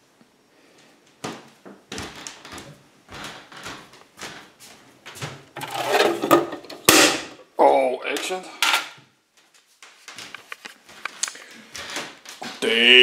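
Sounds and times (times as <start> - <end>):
rustles and knocks of handling: 0.8 - 6.9, 8.2 - 12.6.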